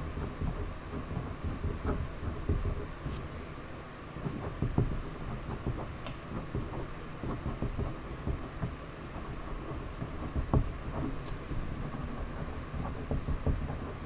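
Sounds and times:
pen scratching on paper: 0.0s - 3.4s, 4.2s - 14.0s.

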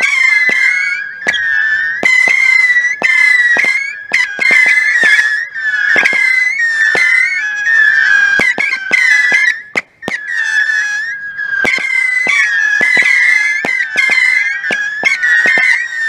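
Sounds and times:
firework pops: 0.0s - 1.4s, 2.0s - 5.4s, 6.0s - 7.4s, 8.4s - 10.4s, 11.6s - 15.8s
firework missiles whistling: 0.0s - 16.0s.

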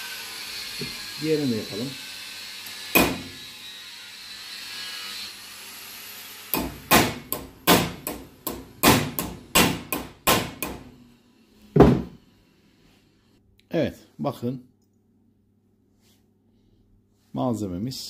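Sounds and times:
hammer blows on sheet metal: 6.5s - 10.9s.

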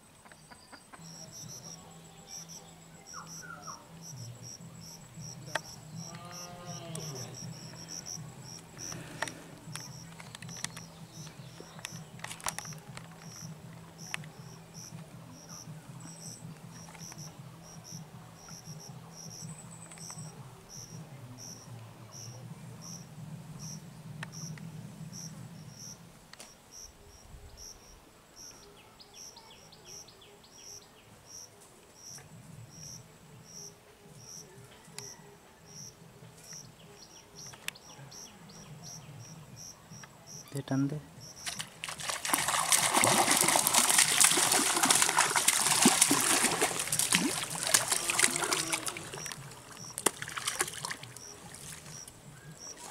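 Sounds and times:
insects chirping: 0.0s - 28.6s, 29.2s - 52.9s.

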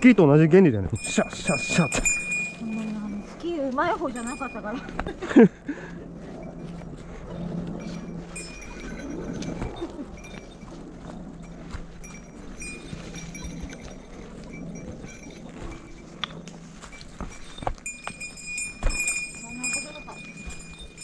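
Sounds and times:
small bell jingling: 0.8s - 5.5s, 6.1s - 21.0s
footsteps crunching through dry leaves: 6.0s - 21.0s.

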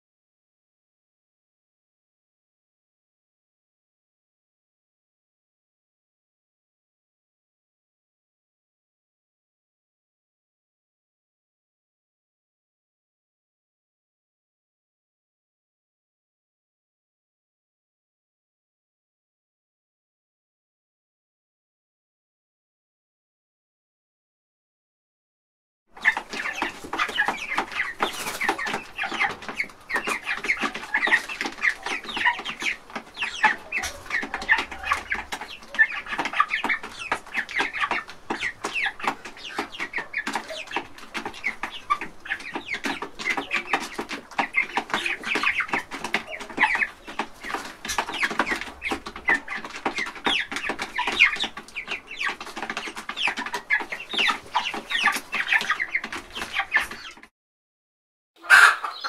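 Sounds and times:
hens and rooster clucking: 25.9s - 57.3s, 58.4s - 59.0s.

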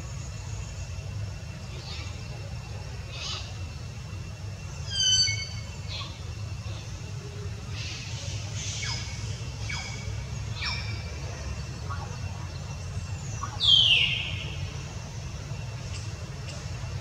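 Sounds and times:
steady low rumble: 5.5s - 17.0s.

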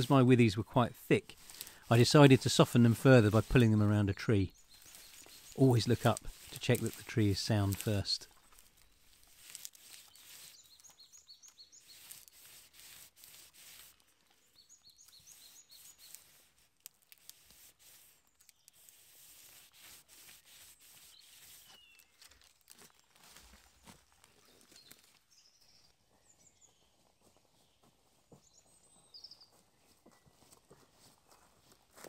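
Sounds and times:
birdsong: 0.0s - 12.5s, 14.2s - 16.5s, 20.4s - 31.8s
faint clicks and crackles: 13.8s - 19.0s.

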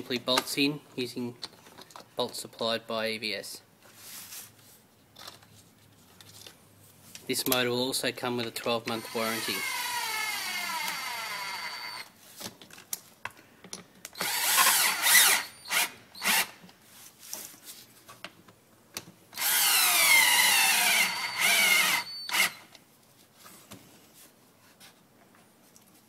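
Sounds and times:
power drill driving bolts: 8.8s - 12.1s, 14.2s - 16.6s, 19.4s - 22.7s.

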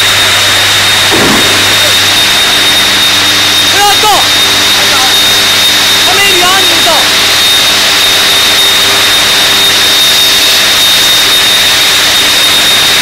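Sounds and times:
low hum: 0.0s - 6.1s
high whine: 0.0s - 13.0s
industrial machinery roar: 0.0s - 13.0s.

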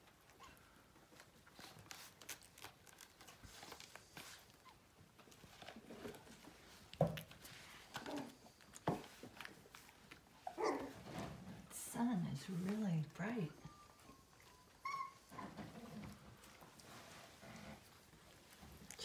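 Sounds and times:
puppies scratching and rustling: 0.0s - 19.0s
puppy vocal sounds: 7.5s - 11.3s, 13.5s - 18.0s.

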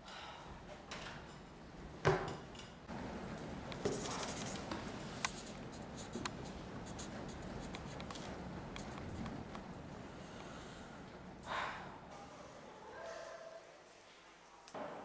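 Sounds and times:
marker pen scratching on paper: 3.8s - 9.2s.

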